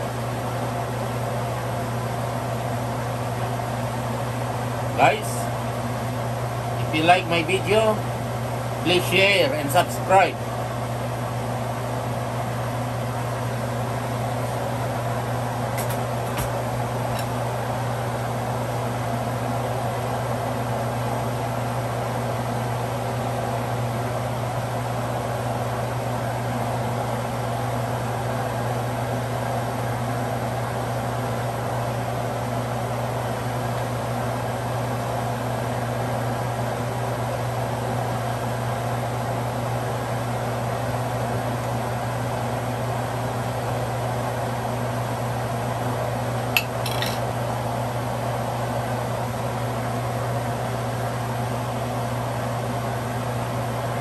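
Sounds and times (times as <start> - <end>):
machine hum: 0.0 - 25.5
metal ladle clinking on plate: 46.6 - 47.2.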